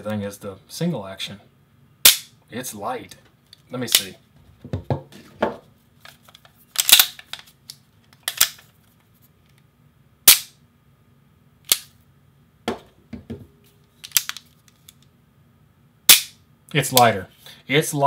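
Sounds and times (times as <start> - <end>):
pistol metallic clicks: 2.1 - 2.3, 10.3 - 10.6, 11.7 - 11.9, 16.1 - 16.4.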